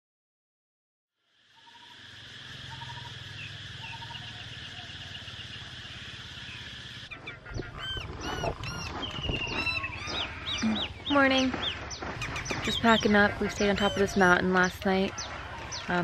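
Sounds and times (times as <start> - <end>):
insects buzzing: 1.2 - 7.3
faint bird chirps: 1.5 - 16.0
fowl calling: 1.6 - 16.0
wind on microphone: 7.4 - 15.8.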